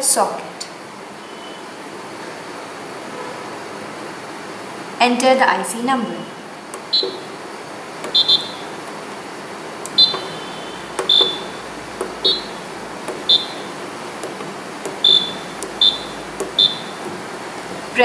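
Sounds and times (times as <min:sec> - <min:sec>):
keypad beeping: 0:06.8 - 0:07.4, 0:08.0 - 0:08.7, 0:09.9 - 0:18.0.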